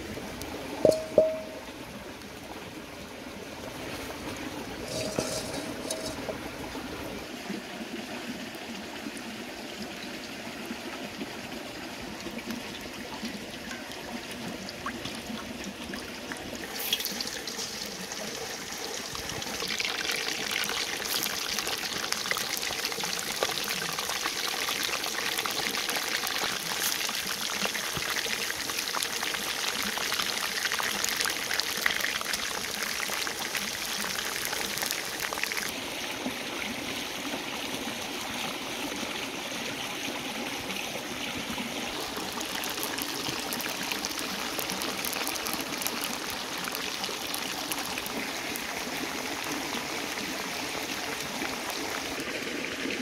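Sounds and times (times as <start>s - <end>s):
deep-frying sizzle and crackle: 4.8s - 6.4s, 16.6s - 35.8s, 41.9s - 50.2s.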